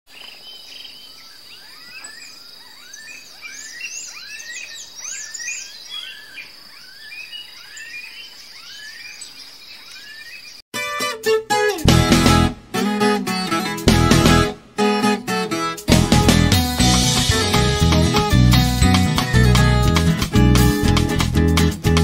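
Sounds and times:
birds calling and chirping: 0.1 - 10.6.

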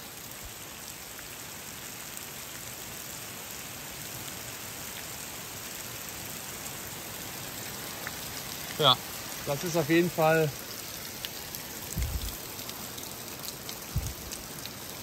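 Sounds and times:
heavy rain hissing: 0.0 - 15.0
faint water drips: 0.1 - 15.0
water running off roof edge: 5.3 - 15.0.

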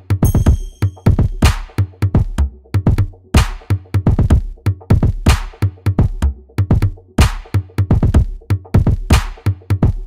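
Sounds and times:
electronic music with drum-machine beat: 0.0 - 10.0
crash cymbal: 0.2 - 1.5.

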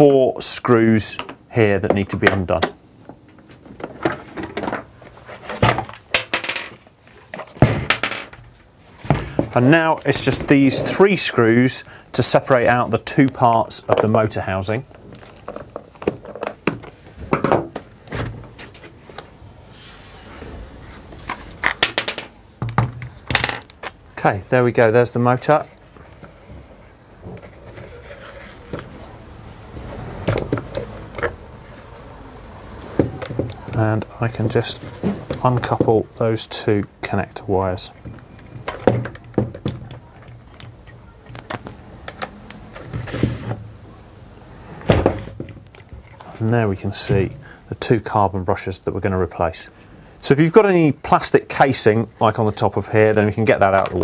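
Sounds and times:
plastic knocks and scraping: 14.9 - 19.3
scraping rustle: 26.2 - 29.0.

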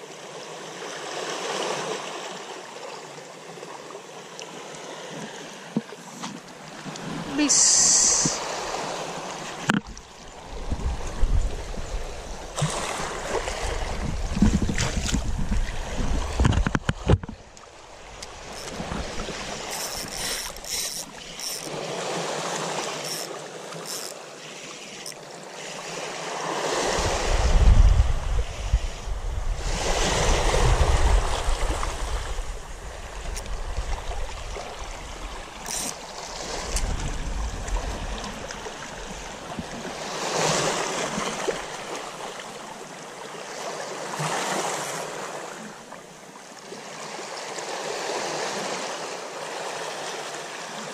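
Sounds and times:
small waves washing on sand: 0.0 - 50.9
wind buffeting microphone: 10.4 - 17.4, 26.9 - 35.4, 36.5 - 38.3.

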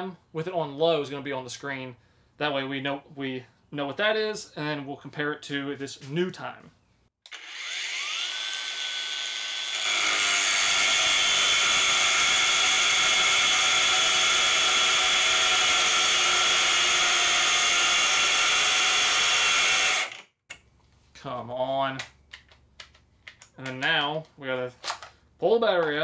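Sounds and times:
angle grinder whine: 7.3 - 20.2.

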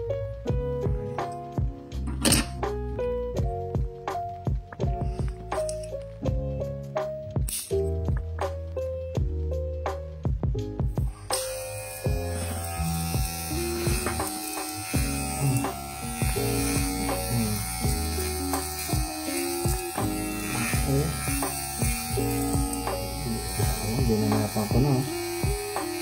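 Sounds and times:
music playing: 0.0 - 26.0
hair clipper buzzing: 11.0 - 26.0.

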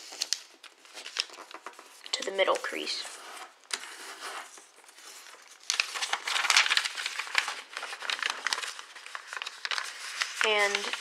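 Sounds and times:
paper rustling and crinkling: 0.0 - 11.0.

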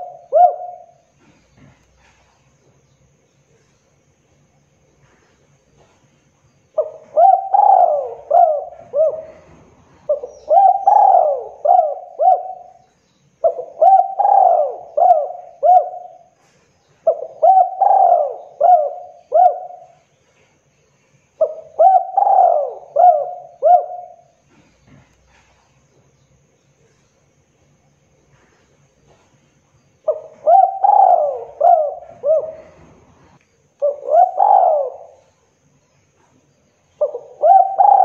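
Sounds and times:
dove cooing: 0.0 - 2.3, 6.8 - 20.0, 21.4 - 25.6, 30.0 - 35.5, 37.0 - 38.0.

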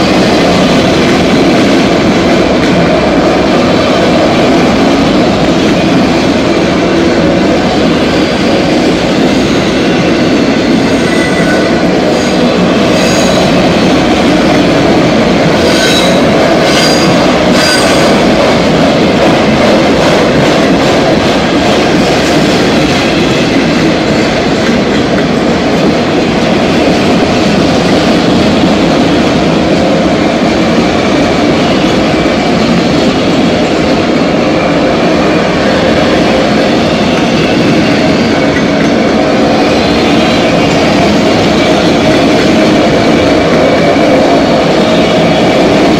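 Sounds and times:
train wheels rumbling on rails: 0.0 - 45.9.

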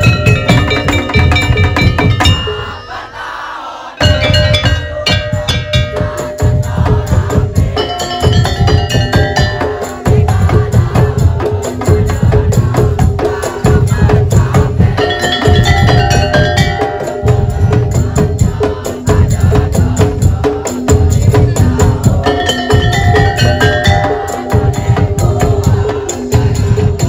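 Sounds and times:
heavy low drum beat: 0.0 - 2.8, 4.0 - 27.0
wood block strikes: 0.0 - 2.8, 4.0 - 11.2, 14.4 - 18.8, 21.3 - 27.0
fast percussion ensemble drumming: 0.0 - 3.2, 4.0 - 27.0
higher melody line: 4.0 - 7.0.

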